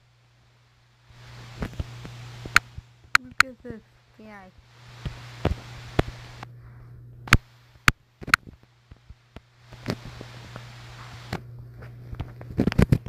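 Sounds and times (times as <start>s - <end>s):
soft hiss: 0.0s - 13.0s
steady low hum: 0.0s - 13.0s.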